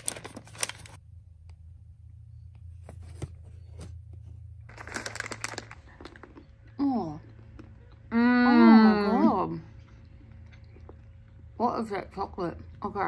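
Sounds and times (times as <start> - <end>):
paper crinkling rustle: 0.0 - 1.0, 4.7 - 6.4
paper pouch tearing: 0.0 - 1.0, 4.7 - 5.8
steady low hum: 0.0 - 13.0.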